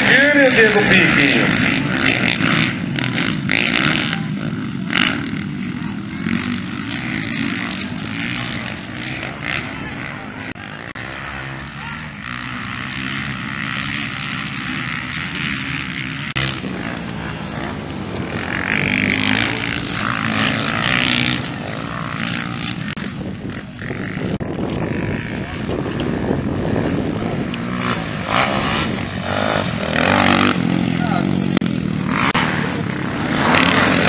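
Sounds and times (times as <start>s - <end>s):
motocross bike engines revving: 0.0s - 34.0s.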